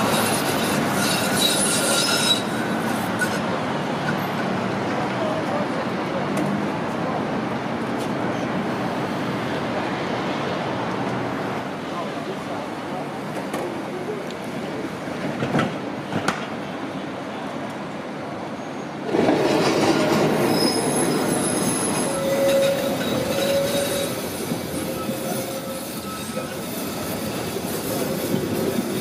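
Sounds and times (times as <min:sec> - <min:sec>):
tram wheels squealing: 0:00.0 - 0:04.5, 0:18.4 - 0:29.0
electric tram running on track: 0:00.0 - 0:29.0.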